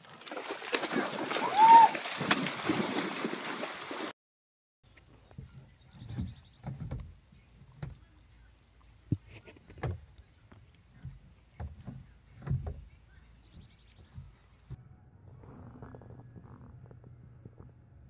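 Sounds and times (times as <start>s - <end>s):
dogs splashing into water: 0.0s - 4.1s
dull knocks: 10.9s - 14.4s.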